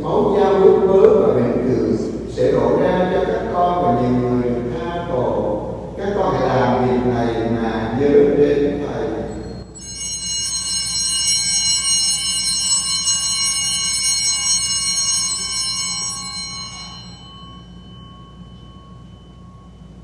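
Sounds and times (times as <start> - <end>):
altar bell ringing: 9.1 - 20.0.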